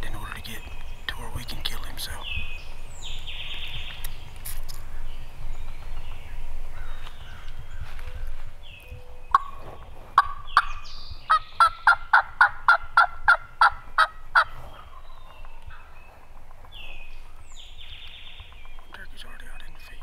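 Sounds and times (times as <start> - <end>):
songbirds chirping faintly: 0.0 - 20.0
turkey call clucks and yelps: 11.3 - 15.0.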